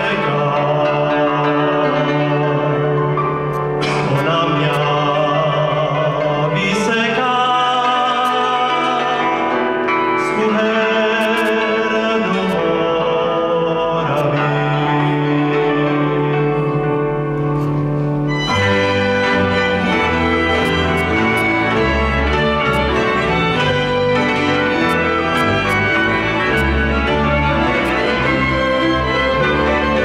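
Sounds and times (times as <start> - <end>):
man singing long notes: 0.0 - 18.0
fiddles: 11.1 - 13.0, 15.7 - 30.0
double bass: 16.4 - 30.0.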